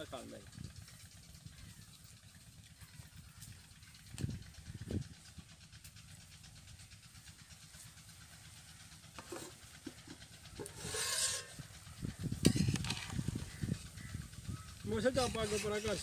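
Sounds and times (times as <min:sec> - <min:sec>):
metal pot lid lifted: 0:09.2 - 0:09.5, 0:10.6 - 0:11.5
metal ladle scraping a pot: 0:09.2 - 0:11.8, 0:12.4 - 0:13.8, 0:15.1 - 0:16.0.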